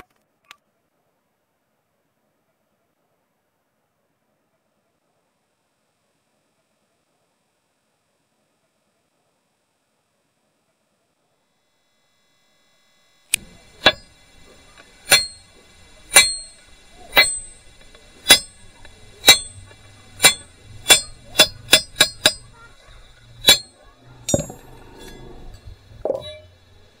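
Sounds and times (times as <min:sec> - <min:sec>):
hammer striking chisel on metal: 0:13.8 - 0:14.2, 0:14.8 - 0:22.6, 0:23.2 - 0:26.5.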